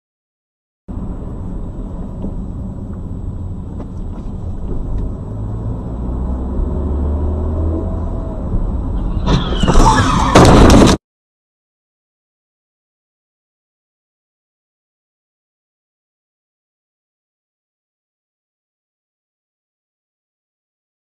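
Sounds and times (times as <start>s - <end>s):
car engine and road rumble: 0.9s - 11.0s
loud harsh crash: 9.0s - 11.0s.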